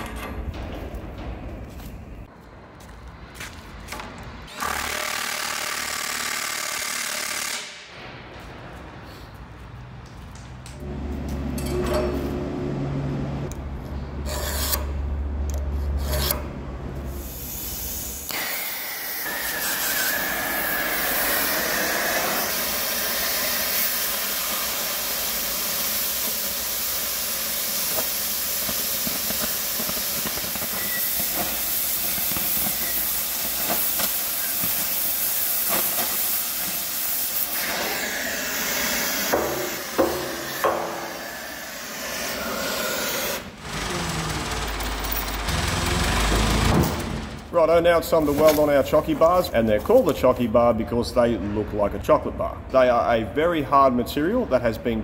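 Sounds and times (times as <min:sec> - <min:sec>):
cutting torch hissing: 0:17.1 - 0:44.2
sharp metal knocks: 0:39.3 - 0:41.1.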